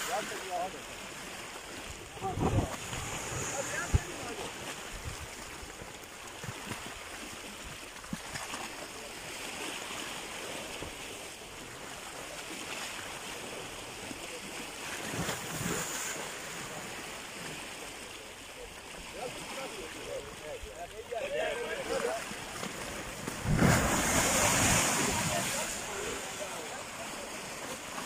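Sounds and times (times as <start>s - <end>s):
river water rushing: 21.2s - 28.0s
soil collapsing into water: 23.1s - 26.1s.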